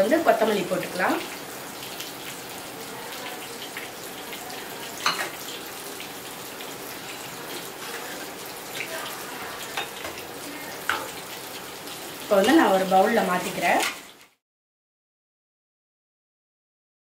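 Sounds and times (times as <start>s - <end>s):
ladle clinking against pot: 5.0s - 5.4s.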